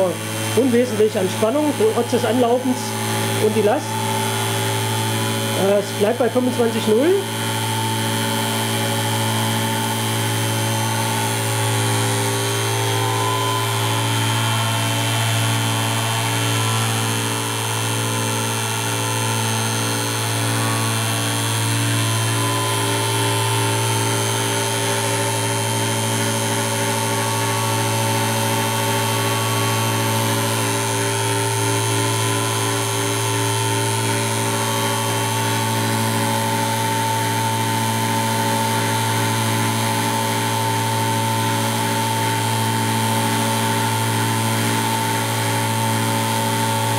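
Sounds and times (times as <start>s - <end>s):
electric motor hum: 0.0s - 46.9s
rapid electric buzz: 0.0s - 46.9s.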